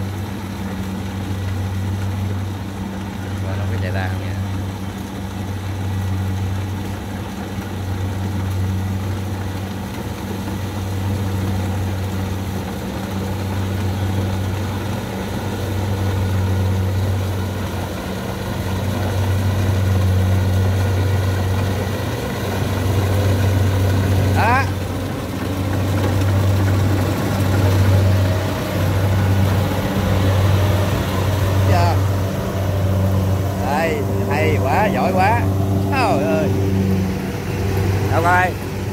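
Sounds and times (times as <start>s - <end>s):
combine harvester diesel engine: 0.0s - 38.9s.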